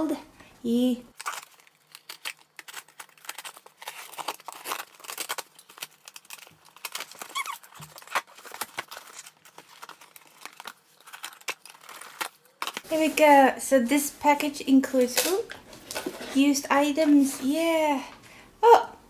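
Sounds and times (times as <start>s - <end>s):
cardboard parcel being ripped open: 1.1s - 13.2s
packing rustling and crinkling: 1.1s - 13.5s, 15.0s - 17.8s.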